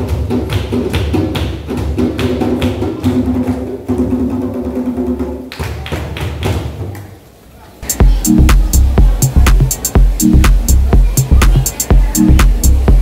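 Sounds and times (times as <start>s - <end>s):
hand drums playing fast rhythm: 7.8s - 13.0s.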